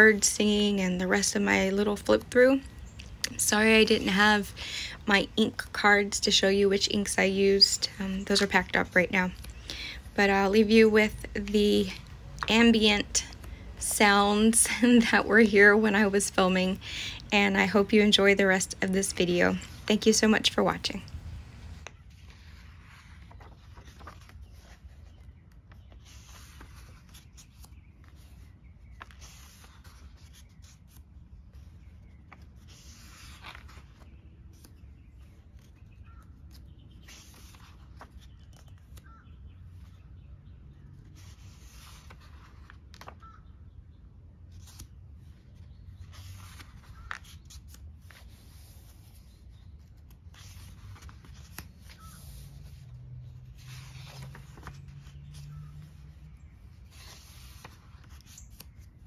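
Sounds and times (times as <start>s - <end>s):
paper pages rustling: 0.1s - 40.1s, 40.9s - 43.4s, 44.5s - 59.0s
faint bird chirps: 38.2s - 41.0s, 43.2s - 44.1s
low outdoor rumble: 50.3s - 58.3s.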